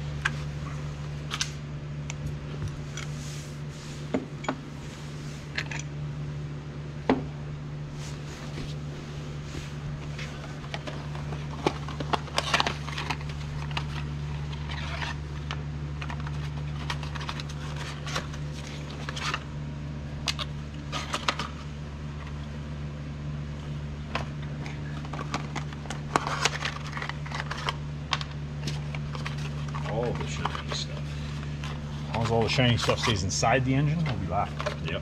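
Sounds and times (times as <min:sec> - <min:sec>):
steady low hum: 0:00.0 - 0:35.0
tools and metal parts clinking: 0:05.5 - 0:05.9.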